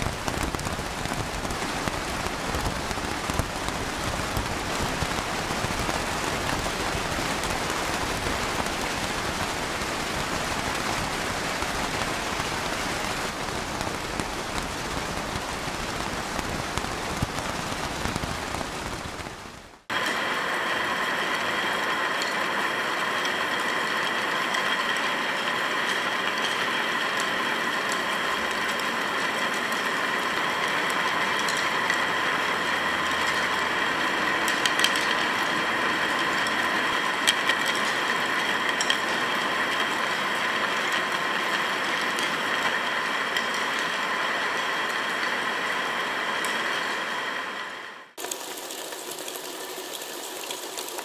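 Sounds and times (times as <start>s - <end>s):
steady mechanical whir: 19.9s - 48.2s.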